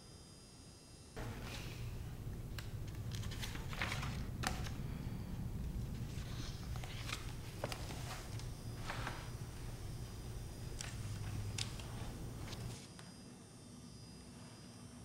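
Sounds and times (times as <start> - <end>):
low room hum: 0.0 - 15.0
book pages rustling: 1.2 - 12.9.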